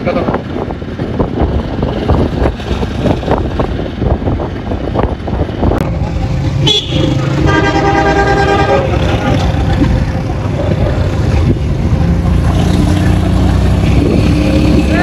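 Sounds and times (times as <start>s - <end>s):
vehicle engine and road noise: 0.0s - 15.0s
vehicle horn: 6.6s - 9.4s.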